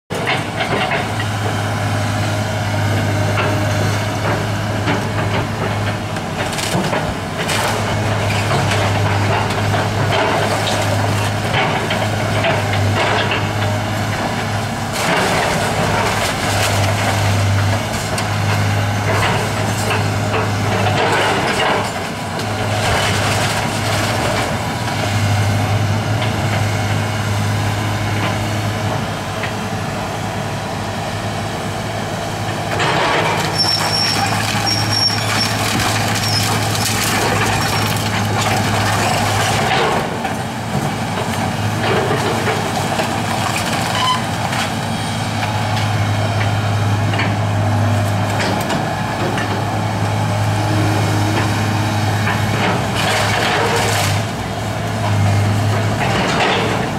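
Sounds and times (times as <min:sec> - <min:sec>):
excavator diesel engine running: 0:00.1 - 0:56.9
wood cracking and splintering: 0:05.7 - 0:13.4, 0:14.1 - 0:25.0, 0:32.8 - 0:44.8, 0:52.2 - 0:54.4.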